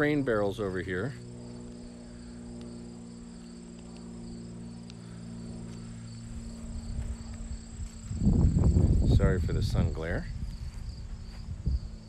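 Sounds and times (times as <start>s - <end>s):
insects trilling: 0.0s - 12.0s
steady low hum: 0.0s - 12.0s
footsteps on lawn: 5.0s - 9.1s, 10.2s - 11.8s.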